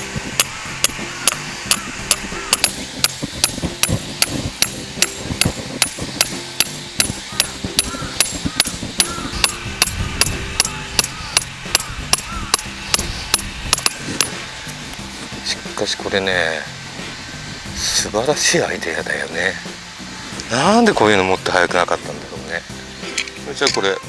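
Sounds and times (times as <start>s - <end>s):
hammer striking metal peg: 0.4s - 14.4s.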